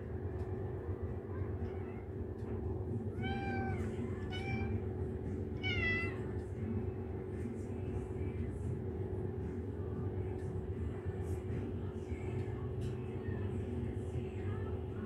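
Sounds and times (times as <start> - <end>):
steady low hum: 0.0 - 15.0
cat meowing: 3.1 - 4.8, 5.6 - 6.4.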